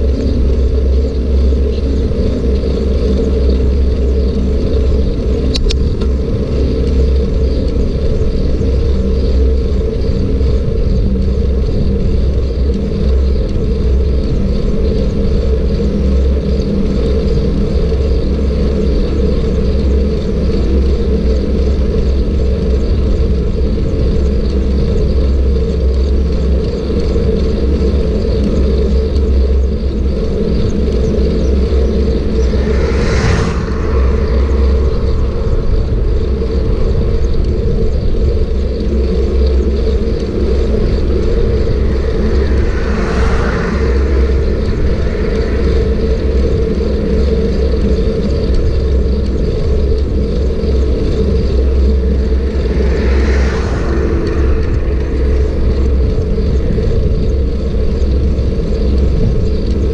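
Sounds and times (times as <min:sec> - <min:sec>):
road rumble: 0:28.3 - 0:59.8
wind rush: 0:29.6 - 0:59.9
vehicle swishing past: 0:31.5 - 0:36.7, 0:40.8 - 0:47.1, 0:51.6 - 0:56.9.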